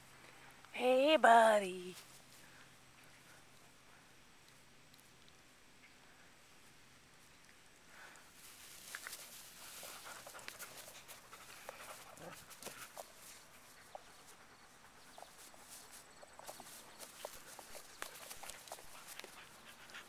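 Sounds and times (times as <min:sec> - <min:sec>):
soft ticks: 0:04.4 - 0:06.0
rustling in long grass: 0:06.6 - 0:20.0.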